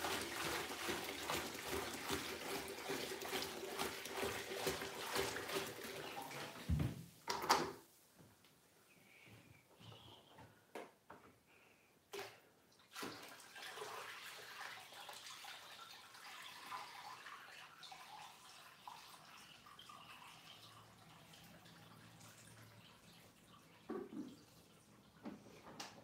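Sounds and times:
water pouring into aquarium: 0.0s - 6.7s, 12.2s - 25.2s.

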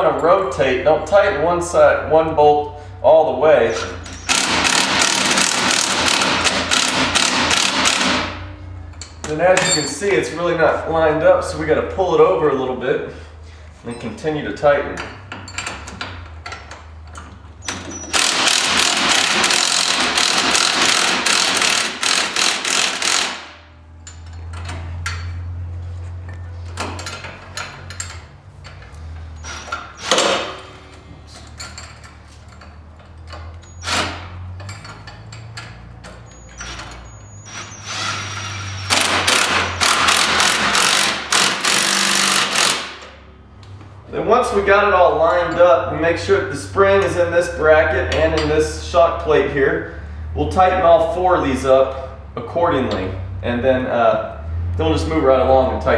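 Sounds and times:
socket ratchet clicking and clanking: 4.0s - 8.2s, 15.0s - 23.4s, 31.4s - 43.2s
cordless impact driver hammering: 4.3s - 8.3s, 17.7s - 23.6s, 30.0s - 30.6s, 37.6s - 43.1s.

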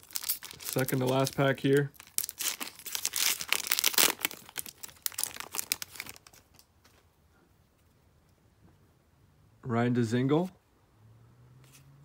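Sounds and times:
card wrapper tearing and crinkling: 0.0s - 6.7s.

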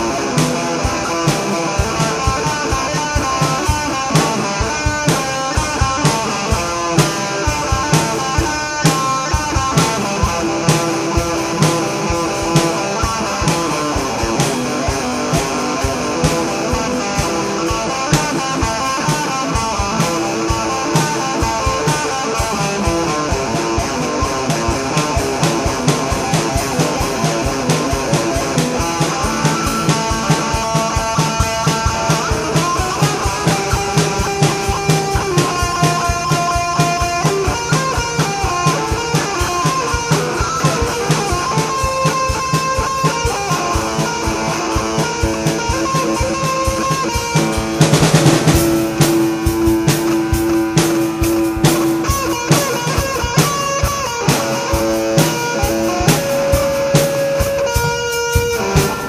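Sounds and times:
drum-kit beat: 0.0s - 59.0s
electric guitar: 0.0s - 59.0s.

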